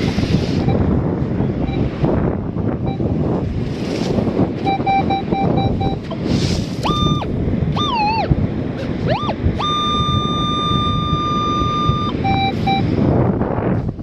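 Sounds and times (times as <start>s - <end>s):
wind on microphone: 0.0s - 14.0s
metal detector tones and beeps: 0.6s - 0.9s, 1.6s - 2.0s, 2.8s - 3.3s, 4.6s - 6.2s, 6.8s - 8.3s, 9.1s - 13.0s.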